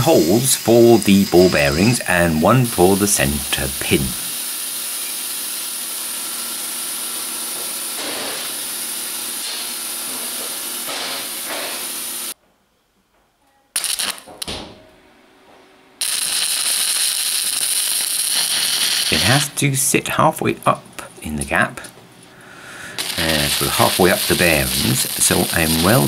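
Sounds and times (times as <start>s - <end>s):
welding arc hissing: 0.0s - 12.4s, 13.8s - 14.7s, 16.0s - 19.6s, 22.8s - 26.0s
workshop hiss: 0.0s - 12.4s, 13.8s - 14.7s, 15.6s - 26.0s.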